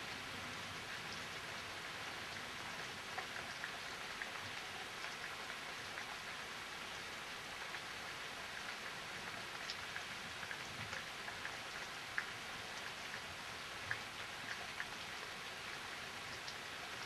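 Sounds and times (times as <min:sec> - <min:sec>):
steady rain hiss: 0:00.0 - 0:17.0
raindrops ticking: 0:07.5 - 0:17.0.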